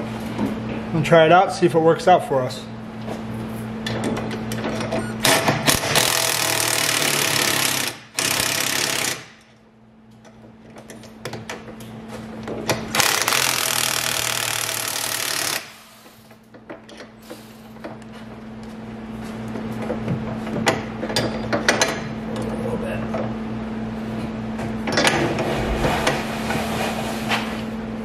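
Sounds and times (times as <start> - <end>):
cordless impact wrench hammering: 5.2 - 9.4.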